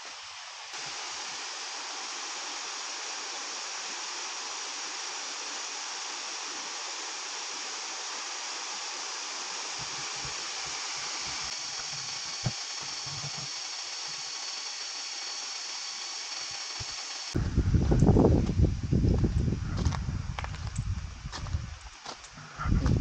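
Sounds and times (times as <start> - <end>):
low buffeting on microphone: 17.4 - 23.0.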